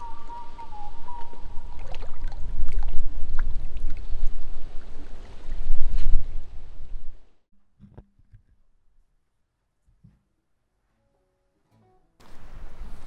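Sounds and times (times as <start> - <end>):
water drips: 0.0 - 6.0
shallow water splashing: 0.0 - 7.0.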